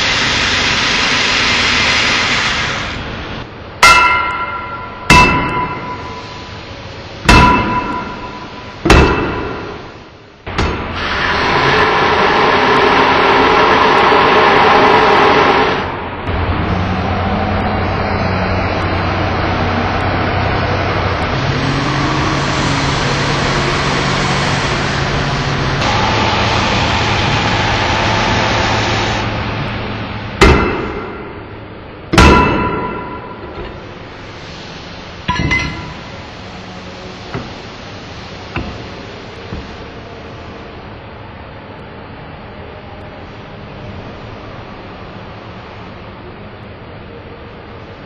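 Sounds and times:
grinding machinery humming: 0.0 - 47.3
hammer blows on metal: 3.8 - 6.5, 7.3 - 10.0.

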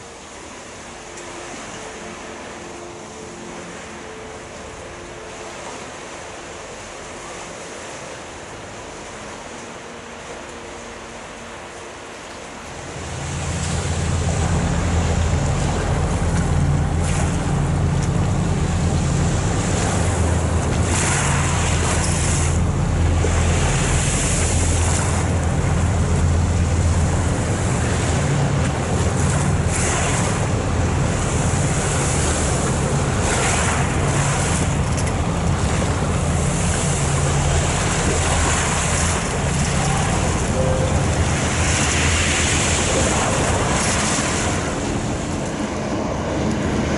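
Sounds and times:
ship engines humming: 0.0 - 46.9
water washing: 12.6 - 46.9.

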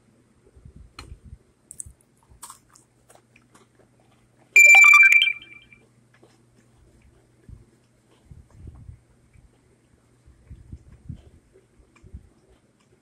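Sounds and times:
crumbly clicks of cookie nibbling: 1.7 - 4.5, 6.1 - 13.0.

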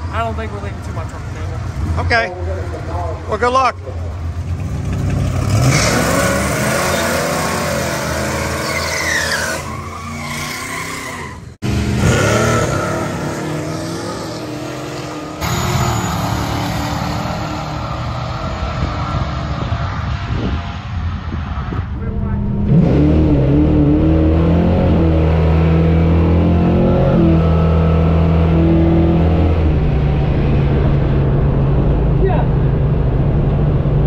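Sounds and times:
race car engine revving: 3.9 - 34.0
tyre squeal: 8.4 - 11.6.

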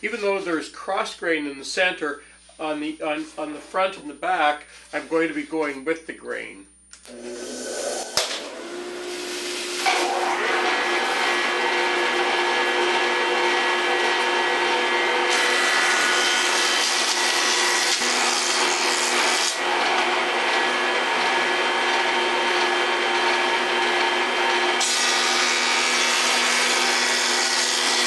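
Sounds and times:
jointer motor whine: 6.9 - 28.0
wood cutting hiss: 7.1 - 10.2.

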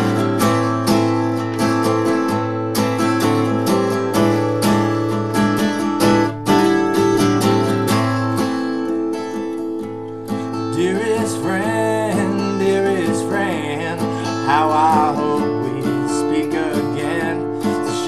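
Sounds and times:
acoustic guitar strumming: 0.0 - 18.0
man singing: 10.6 - 18.0.

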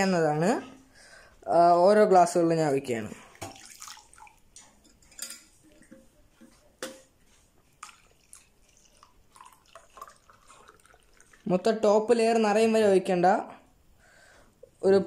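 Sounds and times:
milk dripping and splashing: 3.2 - 11.7.

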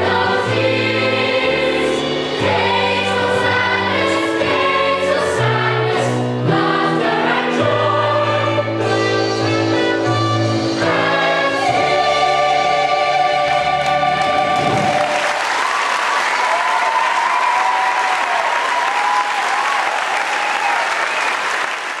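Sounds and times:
musical number with singing: 0.0 - 19.2
audience applauding: 14.2 - 22.0.

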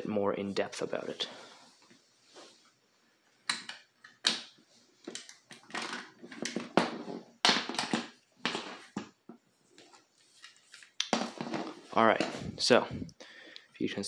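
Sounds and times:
plastic parts clicking and rattling: 3.5 - 6.8.

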